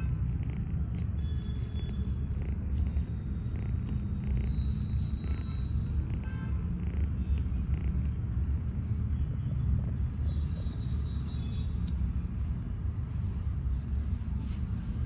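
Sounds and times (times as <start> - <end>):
kitten purring: 0.3 - 8.0.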